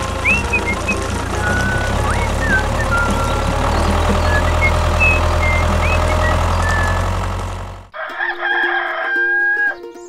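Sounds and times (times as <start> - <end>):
truck engine rumbling: 0.0 - 8.0.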